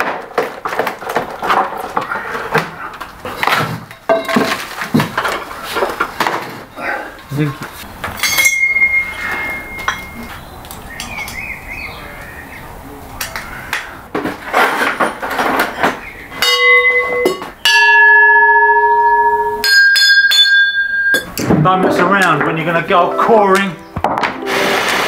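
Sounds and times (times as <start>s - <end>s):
metal parts clanking: 8.1s - 10.4s
drill bit ringing like a bell: 8.2s - 10.3s, 16.4s - 21.3s.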